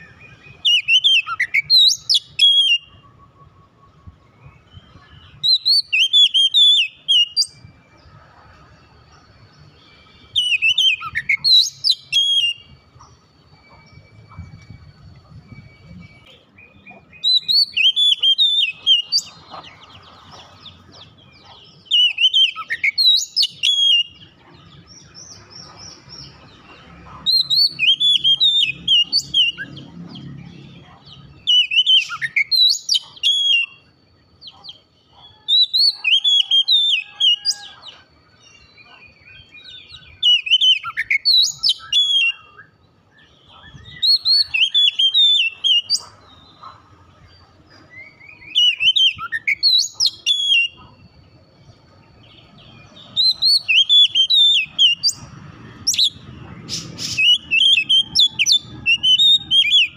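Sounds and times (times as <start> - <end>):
bird whistled song: 0.0 - 59.9.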